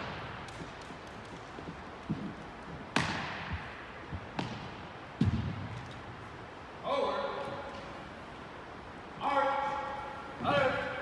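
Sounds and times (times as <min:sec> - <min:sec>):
soft footfalls: 0:01.5 - 0:05.9.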